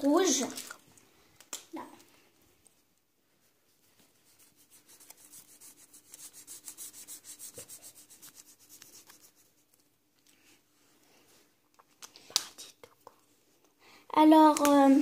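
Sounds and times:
marker scribbling on paper: 4.1s - 9.7s.

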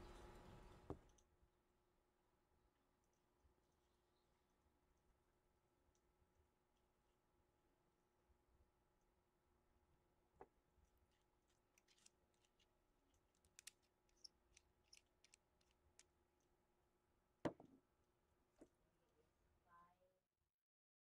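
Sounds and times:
small metal clicks and taps: 11.5s - 12.7s, 13.3s - 16.1s
airbrush knocking on wooden desk: 17.5s - 17.8s.

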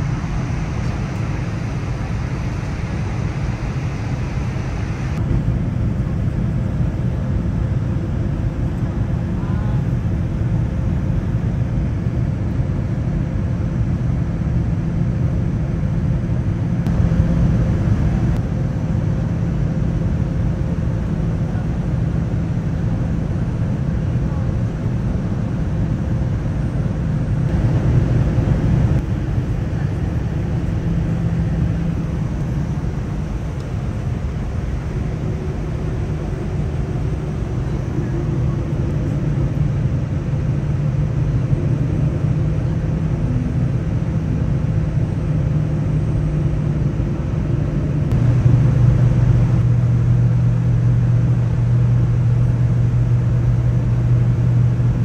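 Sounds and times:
rushing air: 0.0s - 5.8s, 47.9s - 51.4s
jet engine rumble: 0.0s - 55.0s
low cabin hum: 0.0s - 55.0s.

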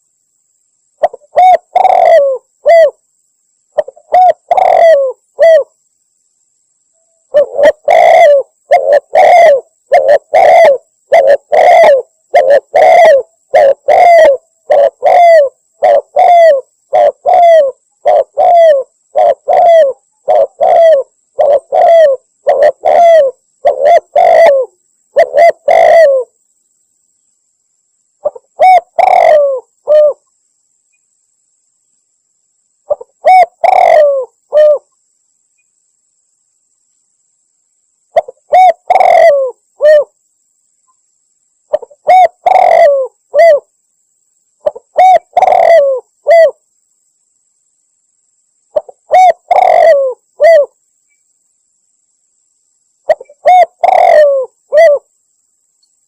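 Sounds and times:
dove cooing: 1.0s - 3.0s, 3.8s - 5.8s, 7.3s - 26.4s, 28.2s - 30.2s, 32.9s - 34.9s, 38.2s - 40.2s, 41.7s - 43.7s, 44.6s - 46.6s, 48.8s - 50.8s, 53.1s - 55.1s.

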